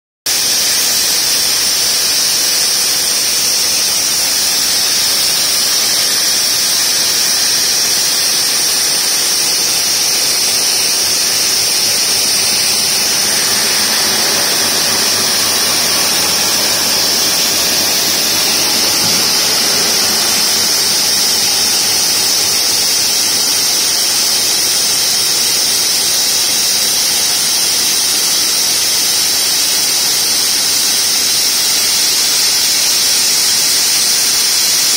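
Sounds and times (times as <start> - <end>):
saw blades cutting stone whine: 0.3 - 26.2
water spray hiss: 0.3 - 29.7.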